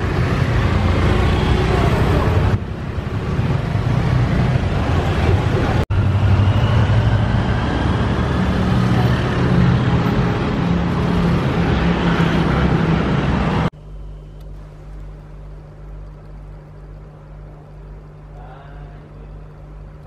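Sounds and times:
car engines: 0.0 - 13.7
motorbike engines: 0.0 - 13.7
steady low hum: 12.8 - 20.0.

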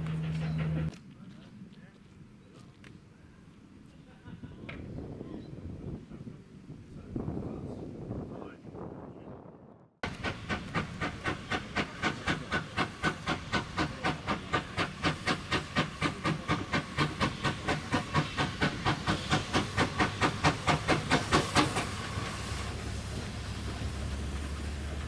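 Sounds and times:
steam hissing: 10.0 - 25.0
steam locomotive exhaust beats: 10.0 - 25.0.

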